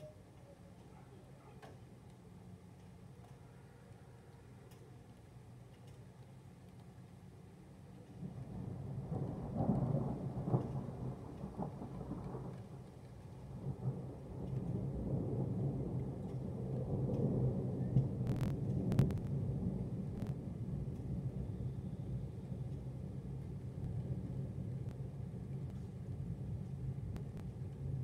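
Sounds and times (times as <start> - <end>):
thunder rumbling: 8.2 - 28.0.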